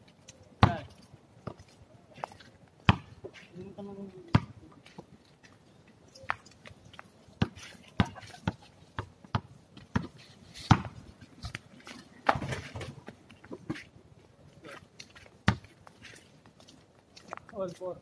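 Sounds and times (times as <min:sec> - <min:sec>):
basketball bouncing on concrete: 0:00.6 - 0:01.6, 0:02.9 - 0:03.2, 0:04.3 - 0:04.6, 0:07.4 - 0:11.0, 0:15.4 - 0:15.6.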